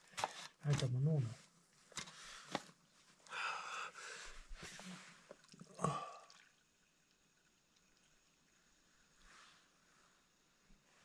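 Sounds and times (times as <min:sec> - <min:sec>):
beer trickling into cup: 0:05.2 - 0:08.6.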